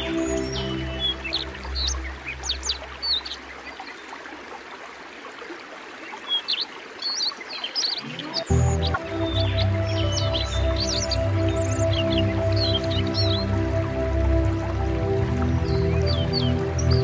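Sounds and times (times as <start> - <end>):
background music: 0.0 - 3.4, 8.0 - 17.0
small birds chirping: 0.0 - 4.2, 6.0 - 17.0.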